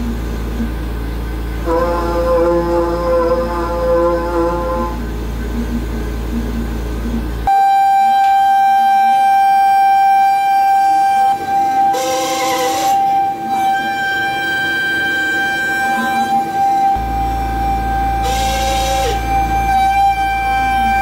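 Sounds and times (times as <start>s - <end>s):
high-pitched cutter whine: 0.0s - 21.0s
milling machine humming: 8.8s - 21.0s
loud hiss: 11.9s - 21.0s.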